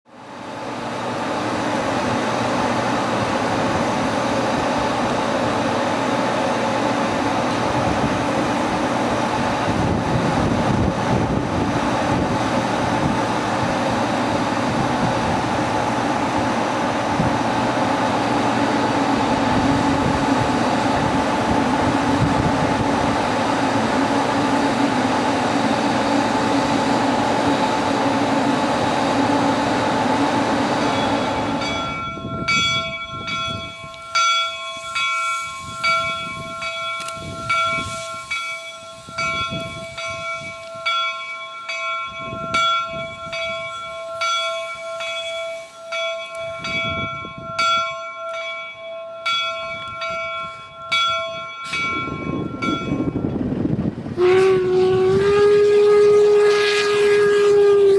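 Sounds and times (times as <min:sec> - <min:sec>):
steam locomotive bell ringing: 0:11.9 - 0:57.9
soft puffs of steam: 0:37.7 - 0:40.7, 0:44.5 - 0:45.9.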